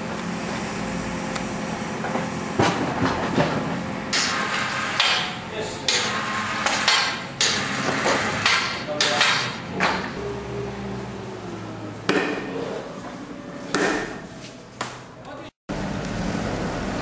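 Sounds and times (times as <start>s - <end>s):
tool knocks and clanks: 2.0s - 10.2s.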